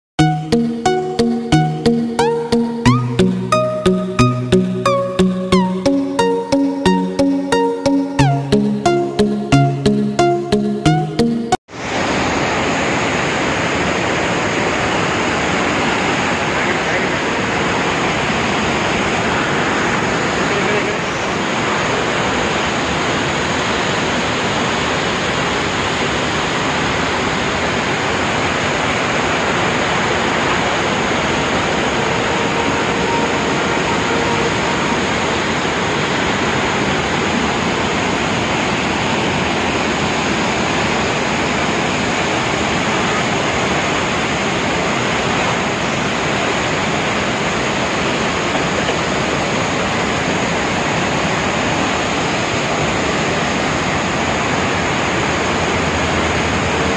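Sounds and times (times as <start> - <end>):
waterfall rushing: 11.7 - 56.9.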